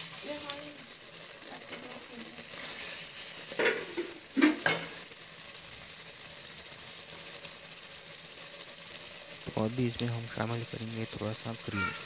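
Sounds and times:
food sizzling in a pan: 0.0s - 12.0s
stirring strokes: 2.4s - 4.5s.

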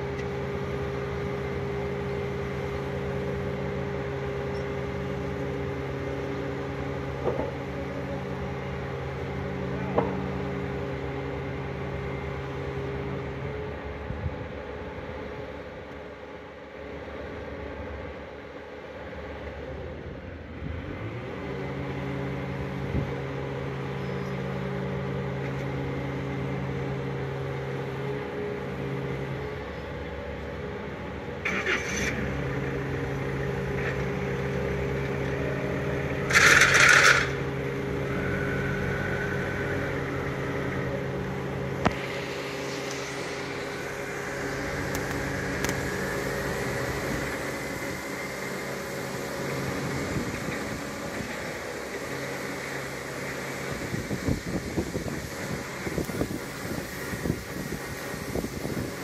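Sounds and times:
boat lift engine humming: 0.0s - 59.0s
loud hiss: 36.2s - 59.0s.

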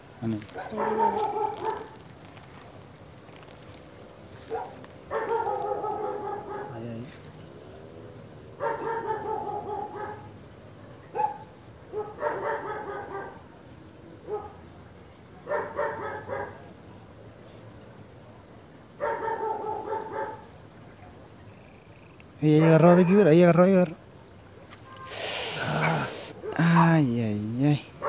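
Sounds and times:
dog barking: 0.5s - 2.0s, 4.4s - 6.9s, 8.6s - 10.3s, 11.1s - 13.5s, 14.2s - 14.6s, 15.4s - 16.7s, 19.0s - 20.5s.

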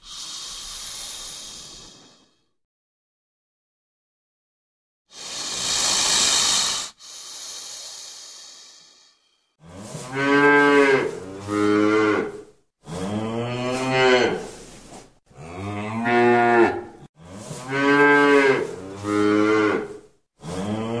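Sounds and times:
snake hissing: 0.0s - 2.5s, 5.1s - 9.5s
cattle mooing: 9.6s - 14.5s, 15.4s - 21.0s.

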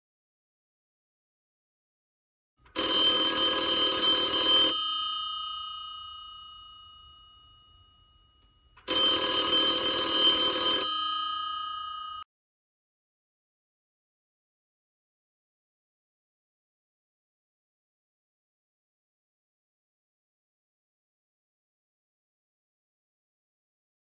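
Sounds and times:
telephone bell ringing: 2.7s - 12.3s.

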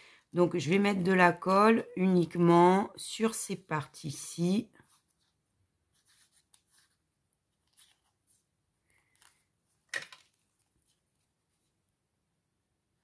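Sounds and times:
paper rustling and clicking: 8.9s - 11.2s.

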